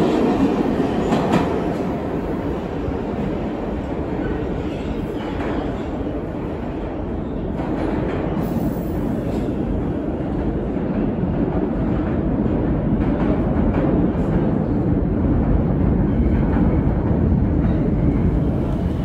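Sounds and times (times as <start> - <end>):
subway train rumbling in tunnel: 0.0 - 19.0.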